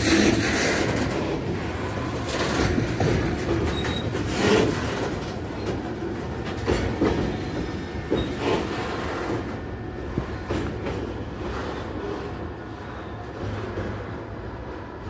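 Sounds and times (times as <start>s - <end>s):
train wheels knocking on track: 0.0s - 11.7s
train rumble: 0.0s - 15.0s.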